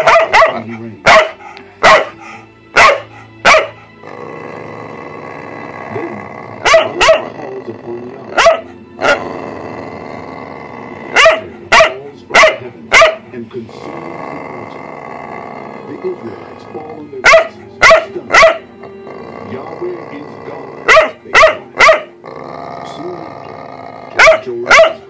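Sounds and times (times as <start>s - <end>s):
dog barking: 0.0s - 2.2s, 2.8s - 3.8s, 6.6s - 7.3s, 8.4s - 9.2s, 11.1s - 13.2s, 17.2s - 18.6s, 20.9s - 22.1s, 24.2s - 25.0s.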